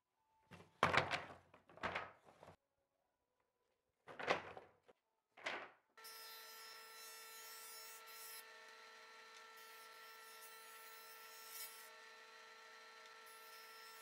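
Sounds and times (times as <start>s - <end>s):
jointer-planer machine whine: 8.4s - 10.2s, 11.9s - 13.5s.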